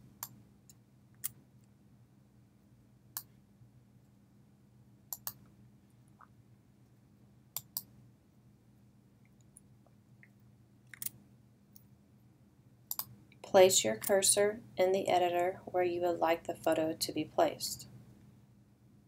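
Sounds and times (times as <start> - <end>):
faint low hum: 0.0 - 19.0
computer mouse clicks: 0.2 - 1.4, 5.1 - 5.5, 7.6 - 7.9, 9.3 - 11.9, 12.9 - 13.2.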